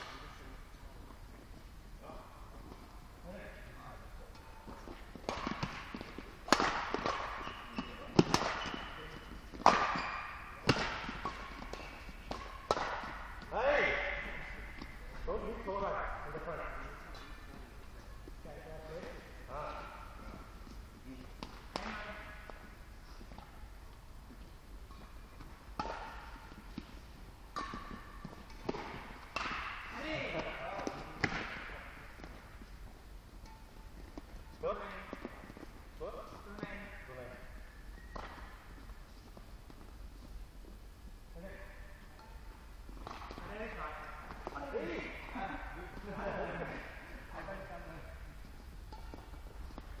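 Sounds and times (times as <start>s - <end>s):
rackets striking shuttlecock: 4.3s - 15.6s, 18.9s - 40.4s, 42.0s - 50.0s
badminton racket hitting shuttlecock: 4.4s - 14.9s, 24.9s - 32.6s, 48.4s - 50.0s.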